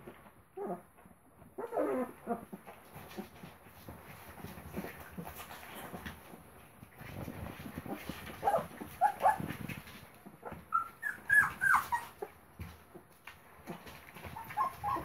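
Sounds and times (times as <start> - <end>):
puppies whimpering and squeaking: 1.5 - 2.5, 7.8 - 12.4, 14.0 - 15.0
soft scuffling: 2.4 - 15.0.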